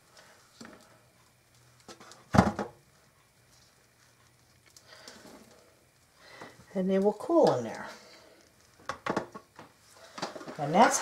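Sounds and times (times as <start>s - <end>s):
potatoes knocking in metal pan: 1.9s - 2.8s, 8.8s - 11.0s
thud in metal pan: 2.3s - 2.7s.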